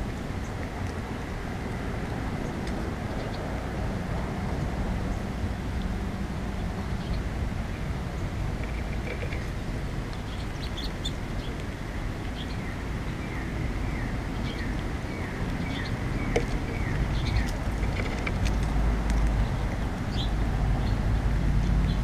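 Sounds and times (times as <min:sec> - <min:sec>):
low background rumble: 0:00.0 - 0:22.0
small birds chirping: 0:02.4 - 0:03.5, 0:06.6 - 0:22.0.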